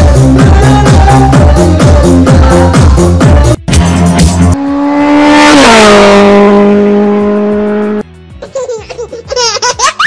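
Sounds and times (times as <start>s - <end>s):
vehicle passing at speed: 4.4s - 8.0s.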